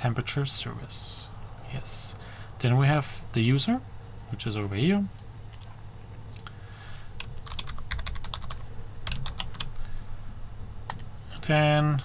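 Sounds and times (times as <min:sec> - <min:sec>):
typing on a computer keyboard: 0:07.2 - 0:09.8.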